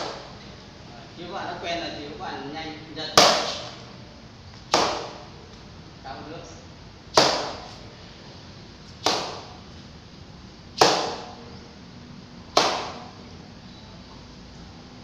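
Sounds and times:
nunchaku smacking kick paddle: 0:00.0 - 0:00.3, 0:03.2 - 0:03.8, 0:04.7 - 0:05.2, 0:07.1 - 0:07.7, 0:09.0 - 0:09.6, 0:10.8 - 0:11.4, 0:12.5 - 0:13.2.

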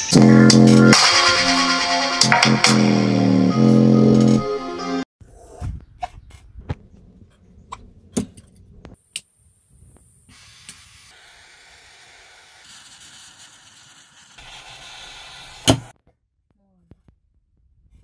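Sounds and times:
gas torch hissing: 0:10.2 - 0:15.9.

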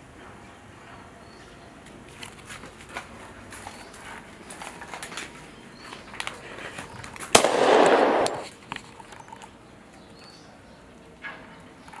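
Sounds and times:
sharp bang: 0:07.4 - 0:08.5.

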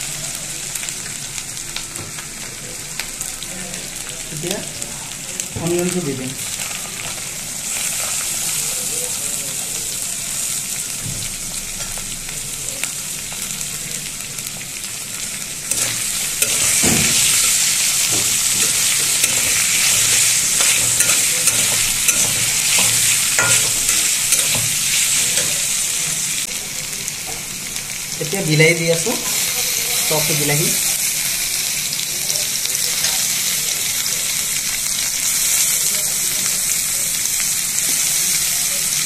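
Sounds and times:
onions sizzling in oil: 0:00.0 - 0:39.0
metal spatula scraping a wok: 0:15.7 - 0:26.2.

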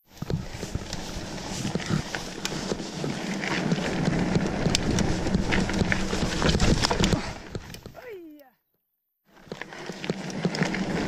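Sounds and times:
bike tyres rolling on dirt: 0:00.0 - 0:08.0, 0:09.3 - 0:11.0
bike knocks and rattles: 0:00.1 - 0:08.0.

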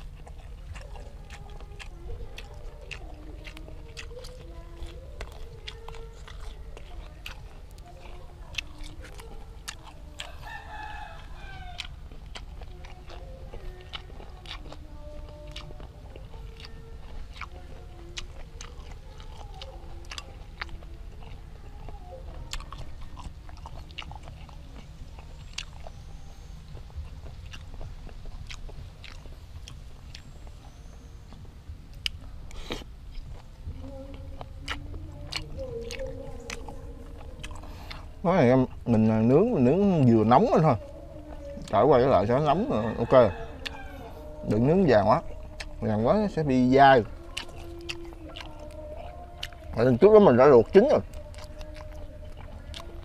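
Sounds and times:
wet mouth clicks: 0:00.0 - 0:10.3, 0:11.7 - 0:39.0, 0:45.1 - 0:45.9, 0:47.0 - 0:49.8
close-up chewing: 0:00.0 - 0:53.0
rooster crowing: 0:09.8 - 0:12.1, 0:39.4 - 0:45.6.

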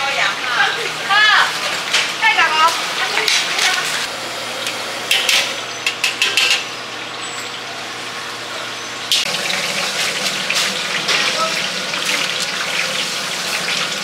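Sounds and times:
oil sizzling: 0:09.1 - 0:14.0.

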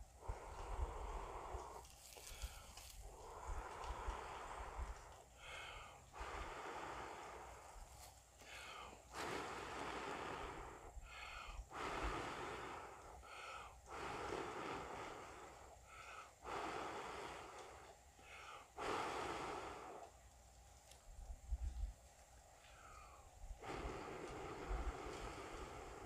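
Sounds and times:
gasping breath in: 0:00.2 - 0:07.8, 0:08.4 - 0:20.1
person blowing hard: 0:09.1 - 0:13.0.

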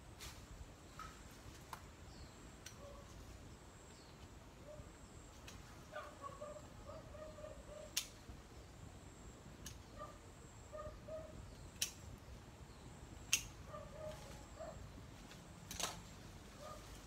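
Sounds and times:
faint outdoor ambience: 0:00.0 - 0:17.0
leafy branches clicking: 0:00.2 - 0:02.0, 0:15.2 - 0:17.0.

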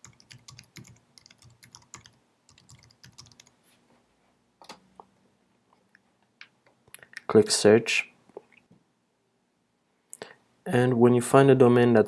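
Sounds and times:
keyboard typing: 0:00.0 - 0:03.6.

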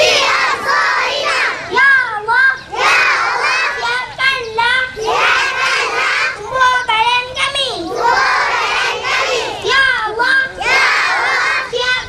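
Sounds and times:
group of children's voices: 0:00.0 - 0:12.0
child singing into microphone: 0:09.2 - 0:12.0.

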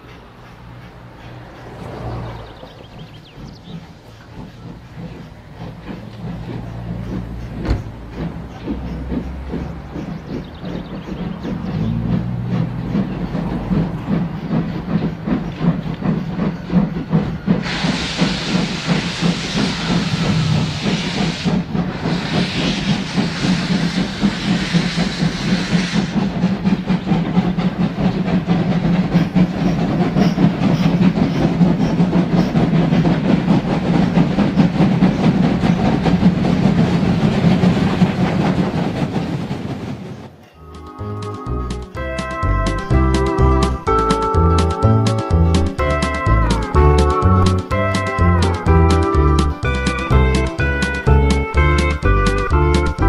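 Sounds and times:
model train wheels clicking: 0:03.0 - 0:40.5, 0:41.5 - 0:53.0
bursts of hiss: 0:17.6 - 0:26.5.

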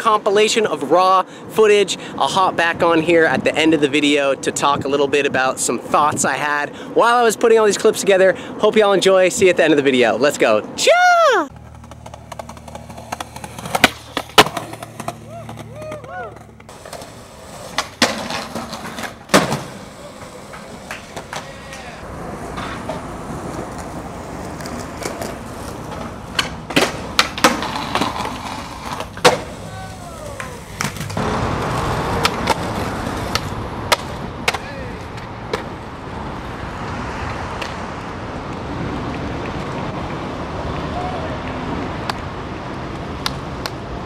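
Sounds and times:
skateboard wheels rolling on concrete: 0:00.0 - 0:44.0
skateboard clacks on concrete: 0:11.5 - 0:35.8.

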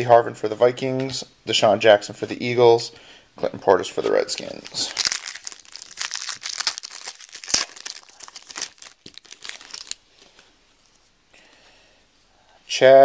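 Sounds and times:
wrapper tearing and crinkling: 0:04.3 - 0:10.4.

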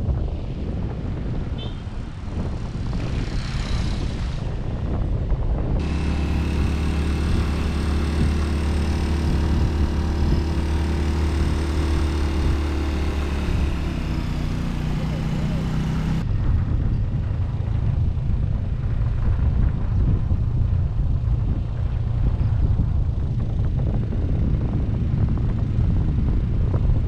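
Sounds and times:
wind on microphone: 0:00.0 - 0:14.9, 0:15.5 - 0:27.0
vehicle engine humming: 0:05.8 - 0:27.0.

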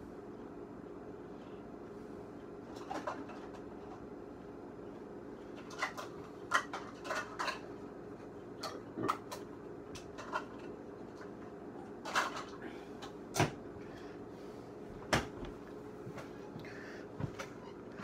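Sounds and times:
steady low hum: 0:00.0 - 0:18.0
dishes and cupboards clinking: 0:05.6 - 0:07.8.

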